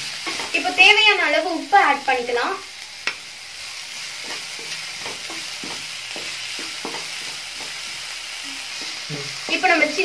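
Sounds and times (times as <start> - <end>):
spatula scraping pan: 0.0 - 1.0, 3.0 - 10.0
vegetables sizzling in oil: 0.0 - 10.0.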